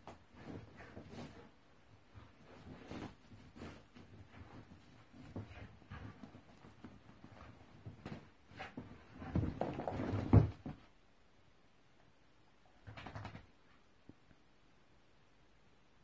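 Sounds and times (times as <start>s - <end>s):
fabric rustling and scuffling: 0.0s - 10.9s.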